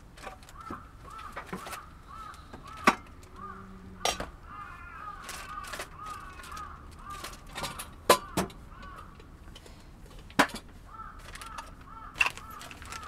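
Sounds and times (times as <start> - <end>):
birds chirping: 0.5 - 9.2, 10.9 - 13.0
camping gear handled: 10.2 - 13.0.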